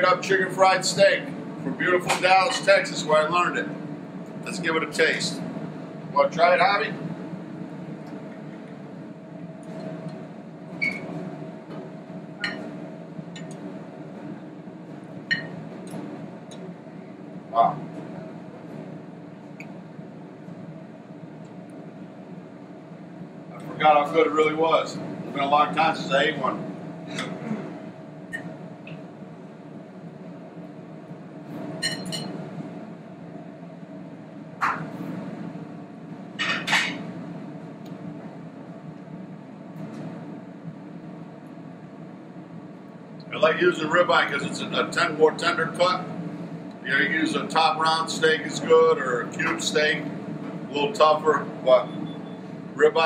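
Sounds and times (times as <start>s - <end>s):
fan humming: 0.0s - 53.0s
cutlery clinking on plate: 31.8s - 32.3s.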